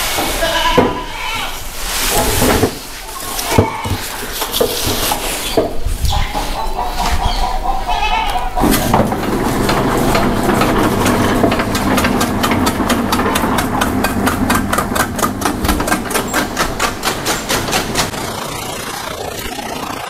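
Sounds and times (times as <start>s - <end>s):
chaff cutter running: 8.6s - 20.0s
rapid chopping of grass: 10.2s - 18.2s.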